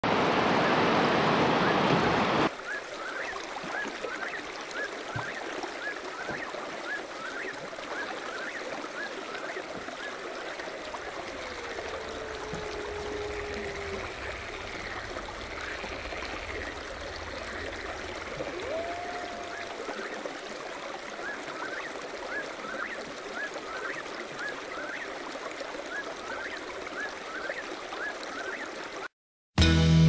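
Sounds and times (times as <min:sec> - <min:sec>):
stream water rushing: 0:00.0 - 0:29.1
bird calling rising notes: 0:10.7 - 0:20.3.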